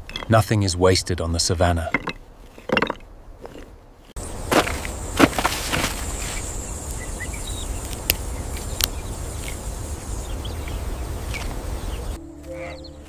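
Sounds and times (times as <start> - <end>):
low wind rumble: 0.0 - 13.0
high insect buzz: 4.2 - 13.0
faint bird chirps: 6.1 - 13.0.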